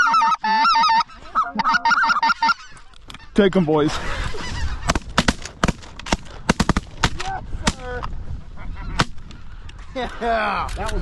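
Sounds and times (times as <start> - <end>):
geese calling: 0.0 - 5.7, 8.5 - 9.7
shotgun blasts: 4.9 - 7.8.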